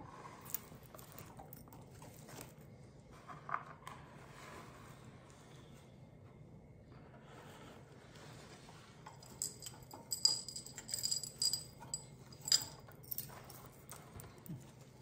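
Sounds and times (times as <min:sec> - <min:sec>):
bangle bracelets jangling: 0:09.1 - 0:14.3.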